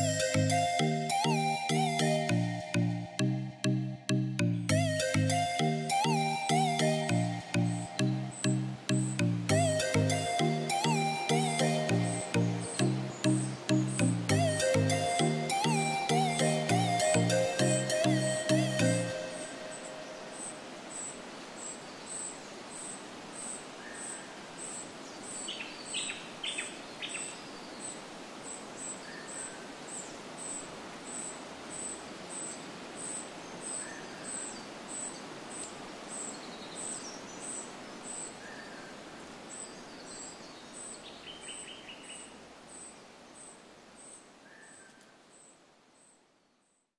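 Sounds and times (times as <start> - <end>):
high repeating chirp: 0.0 - 19.8
soft steady hiss: 0.0 - 46.9.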